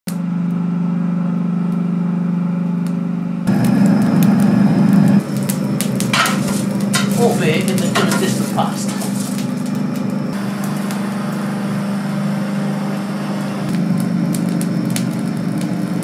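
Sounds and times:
forge air blower humming: 0.1s - 16.0s
poker raking burning coal: 3.5s - 16.0s.

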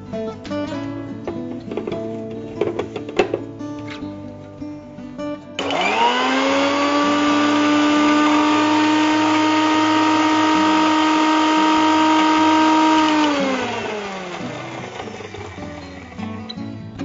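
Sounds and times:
mixer grinder whining: 5.6s - 16.6s.

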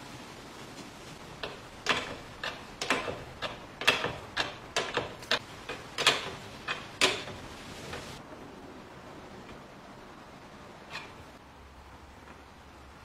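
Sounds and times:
wooden parts clicking and knocking: 1.2s - 8.2s.

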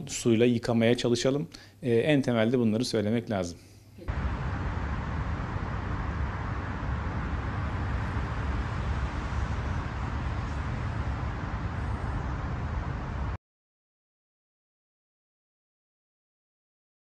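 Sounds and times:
even hiss: 4.0s - 13.4s
low outdoor rumble: 4.0s - 13.4s.

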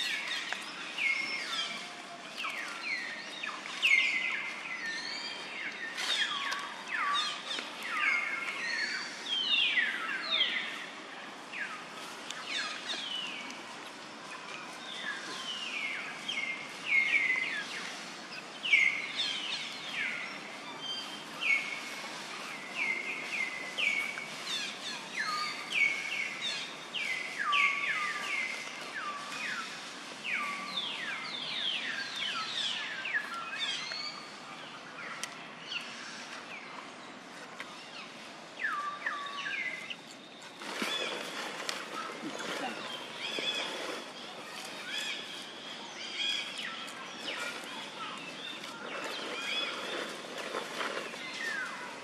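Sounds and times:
soft outdoor hiss: 0.0s - 52.0s
birds chirping: 22.5s - 52.0s.

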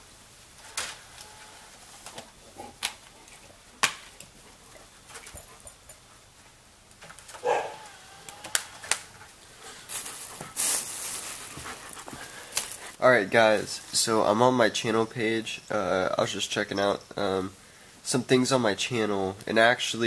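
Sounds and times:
dog whining: 7.4s - 9.2s.

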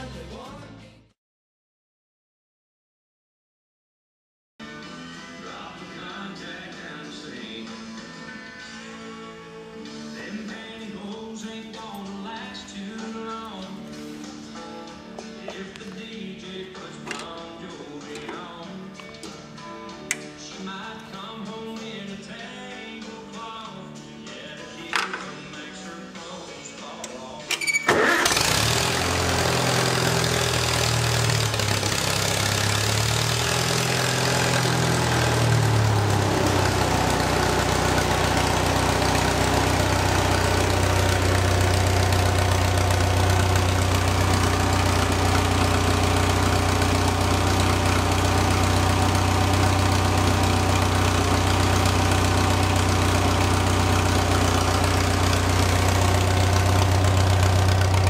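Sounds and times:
tractor engine running: 27.9s - 58.0s.

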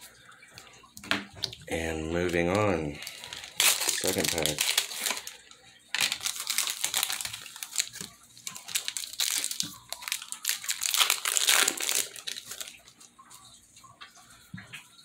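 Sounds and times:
foil wrapper crinkling: 2.3s - 13.5s.

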